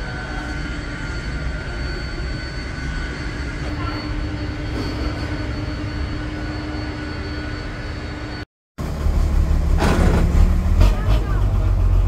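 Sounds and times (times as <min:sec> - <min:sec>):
jet engines whining: 0:00.0 - 0:12.0
low engine rumble: 0:08.8 - 0:12.0.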